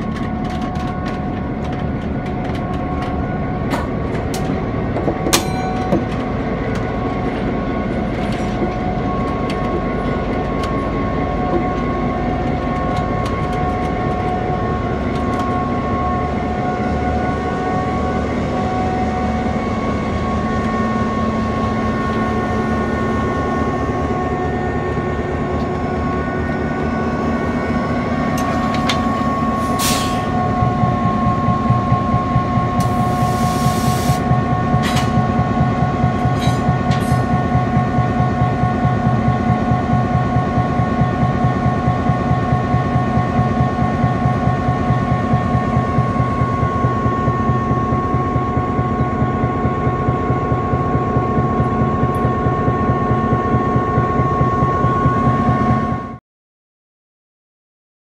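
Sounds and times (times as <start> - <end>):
diesel locomotive engine whining: 0.0 - 56.2
air hissing: 32.8 - 34.2.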